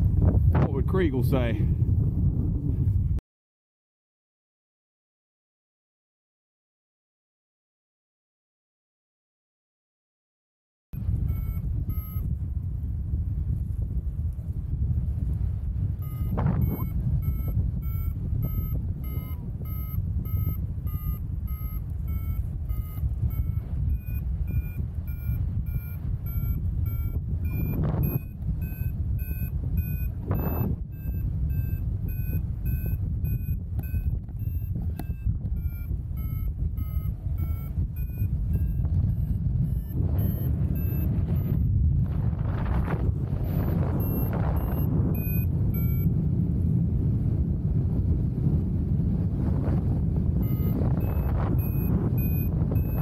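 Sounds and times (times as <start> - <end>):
wind noise on microphone: 0.0 - 3.2, 11.0 - 53.0
variometer beeping: 11.0 - 12.5, 15.7 - 41.8, 43.2 - 46.3, 49.7 - 53.0.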